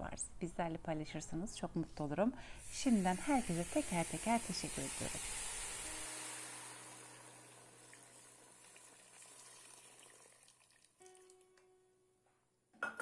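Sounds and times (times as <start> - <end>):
boiling water sizzling in pot: 2.6 - 11.3.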